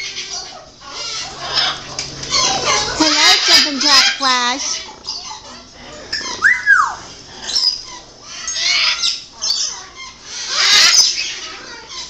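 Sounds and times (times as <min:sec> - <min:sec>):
parrot squawks and chatter: 0:00.0 - 0:12.0
parrot whistle: 0:06.2 - 0:07.8.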